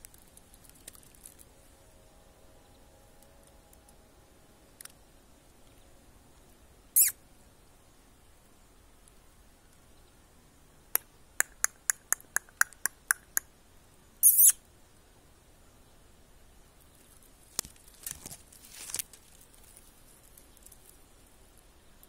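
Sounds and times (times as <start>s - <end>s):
branches rustling against phone: 0.0s - 1.8s, 17.0s - 21.3s
nestlings begging squeal: 7.0s - 7.2s, 14.2s - 14.6s.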